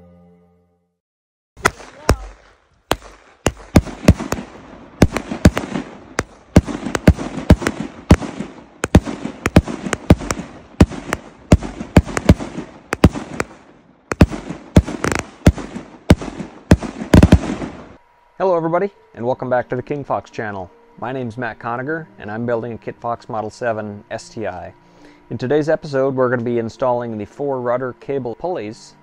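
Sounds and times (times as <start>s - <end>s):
fireworks bursting: 1.6s - 18.0s.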